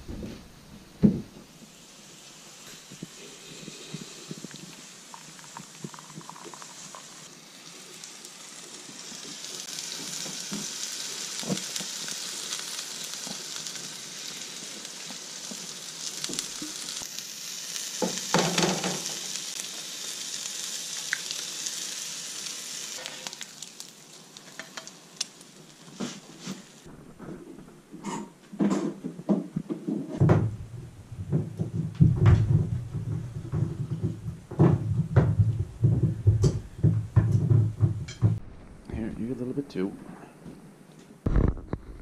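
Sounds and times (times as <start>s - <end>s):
food sizzling in a frying pan: 1.5s - 26.9s
cooking utensils clicking and scraping: 23.0s - 23.5s, 24.4s - 26.7s.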